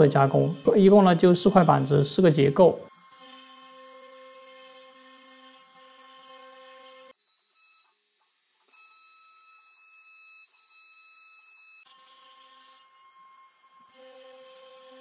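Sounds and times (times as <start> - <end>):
router spindle whine: 0.0 - 15.0.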